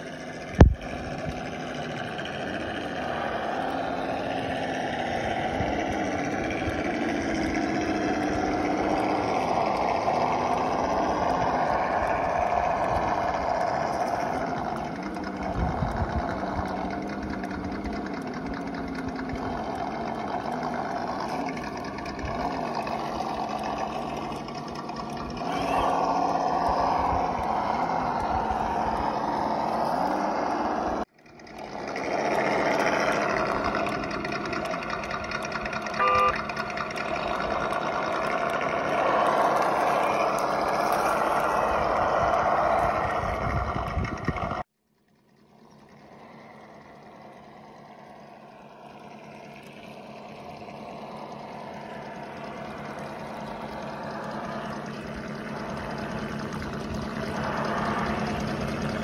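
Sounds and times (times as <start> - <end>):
simulated engine sound: 0.0 - 59.0
short beep: 36.0 - 36.4.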